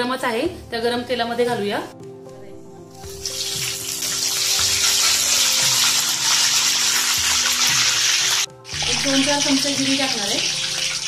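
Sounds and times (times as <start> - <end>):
spices sizzling in hot oil: 3.1 - 11.0.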